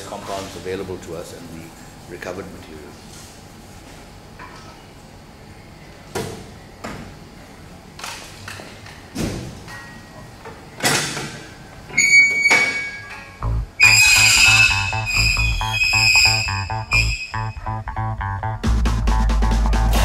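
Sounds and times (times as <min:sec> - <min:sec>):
music: 0:13.4 - 0:20.0.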